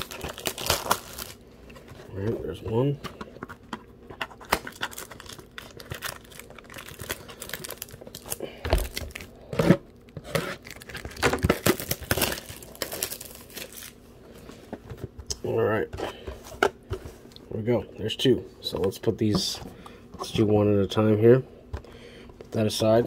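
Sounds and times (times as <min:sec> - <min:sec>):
plastic shrink-wrap tearing: 0:00.0 - 0:01.4, 0:04.5 - 0:09.3, 0:10.4 - 0:14.0.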